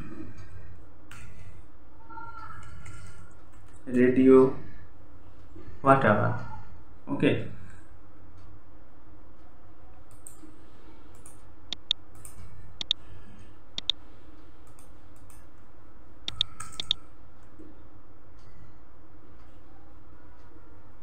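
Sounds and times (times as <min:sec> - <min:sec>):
steady low hum: 0:00.0 - 0:21.0
computer mouse clicking: 0:10.0 - 0:13.0, 0:13.8 - 0:14.0, 0:14.6 - 0:15.5, 0:16.3 - 0:17.6.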